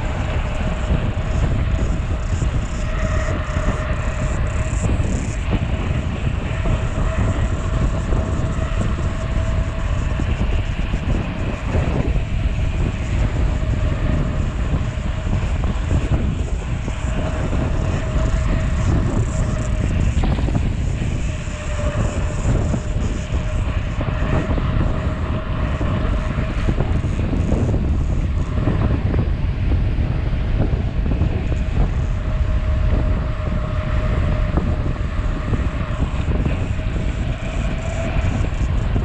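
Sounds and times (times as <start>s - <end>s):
wind buffeting microphone: 0.0s - 39.0s.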